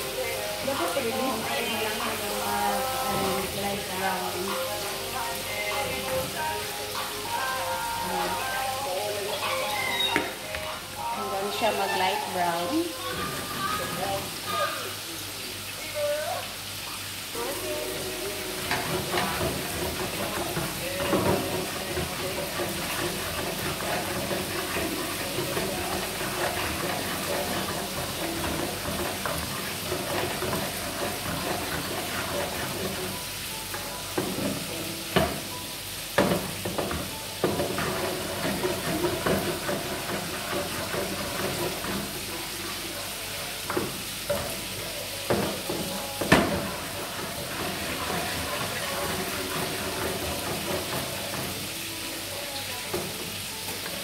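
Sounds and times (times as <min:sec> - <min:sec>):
food sizzling in oil: 0:00.0 - 0:54.0
wooden spatula scraping pan: 0:18.6 - 0:33.2, 0:36.8 - 0:42.3, 0:45.4 - 0:51.6.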